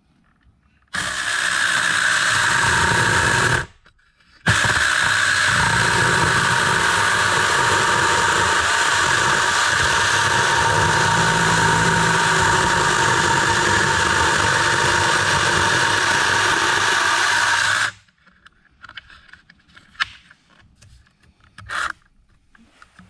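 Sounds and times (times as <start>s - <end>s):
electric chainsaw running: 0.9s - 3.7s, 4.5s - 18.0s.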